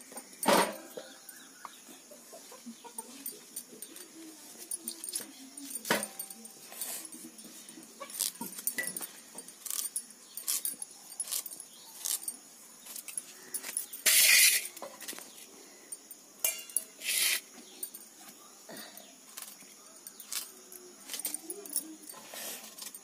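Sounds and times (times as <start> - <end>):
bangles clinking: 0.0 - 23.0
blade scraping: 14.0 - 14.8.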